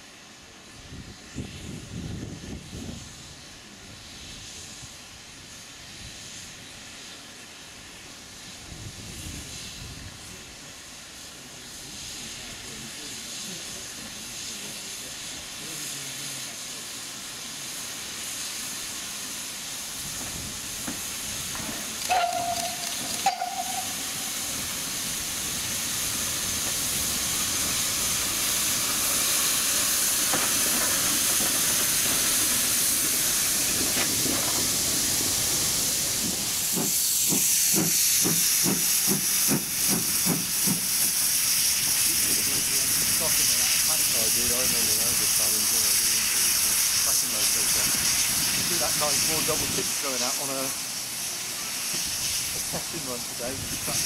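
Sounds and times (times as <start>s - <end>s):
steam hissing: 0.0s - 54.0s
steam whistle toot: 22.0s - 24.4s.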